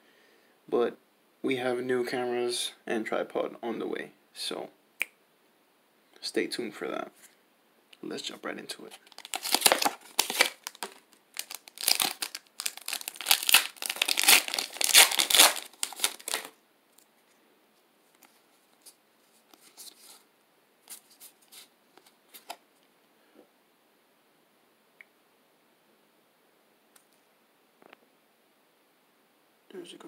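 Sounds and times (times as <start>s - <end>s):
cards clicking and rustling: 9.0s - 16.5s
foil wrapper crinkling and tearing: 9.0s - 16.6s.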